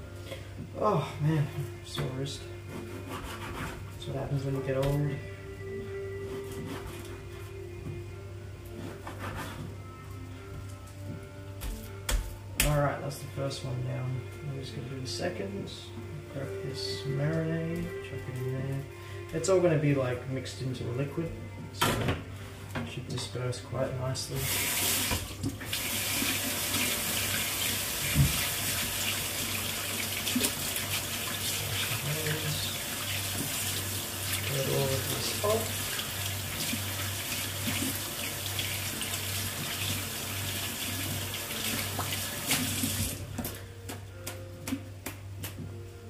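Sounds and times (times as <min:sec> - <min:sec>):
tap running into sink: 0:28.0 - 0:28.7.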